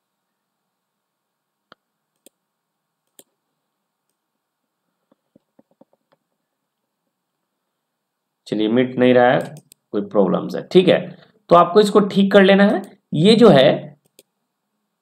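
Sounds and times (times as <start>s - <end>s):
computer mouse clicks: 1.7s - 2.4s, 3.0s - 3.4s, 9.4s - 9.9s, 14.0s - 14.4s.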